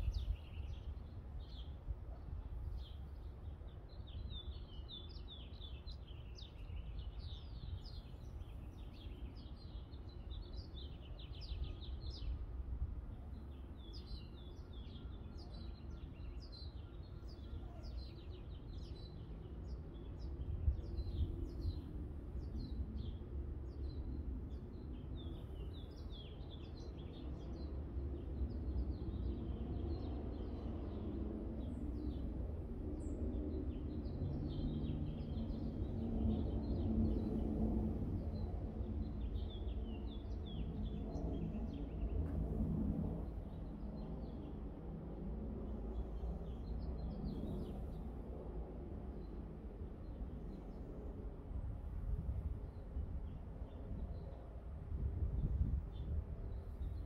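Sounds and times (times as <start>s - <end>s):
small birds chirping: 2.5s - 12.4s, 13.1s - 32.3s, 45.7s - 48.2s
low outdoor rumble: 28.9s - 57.0s.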